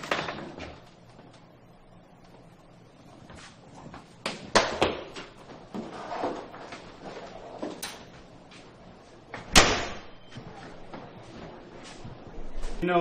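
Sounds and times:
objects knocking and clattering: 0.0 - 0.8.

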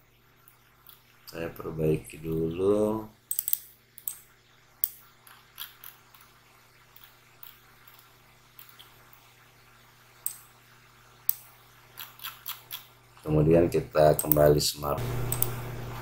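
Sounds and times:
faint low hum: 0.0 - 16.0
computer mouse clicks: 15.3 - 15.6.

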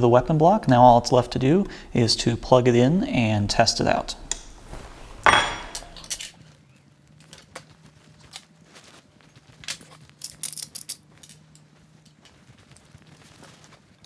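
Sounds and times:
faint steady hum: 0.0 - 14.0
metal parts tapping on wooden bench: 5.2 - 6.0.

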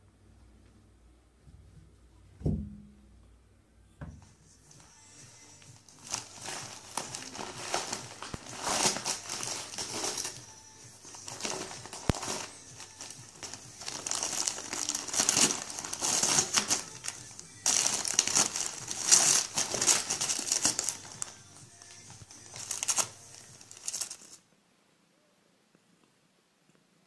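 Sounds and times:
cat crinkling a wrapper: 5.9 - 24.4.

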